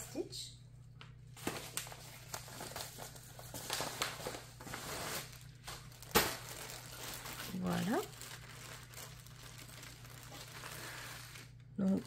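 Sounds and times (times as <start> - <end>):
plastic packaging crinkling: 1.0 - 12.0.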